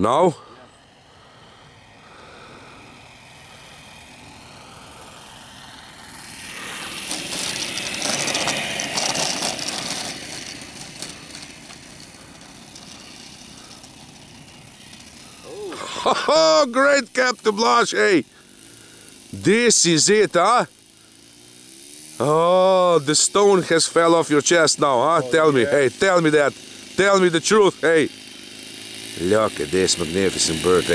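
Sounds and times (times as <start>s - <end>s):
model plane engine running: 0.0s - 30.9s
wheels rattling over rough grass: 6.6s - 15.8s, 16.5s - 30.9s.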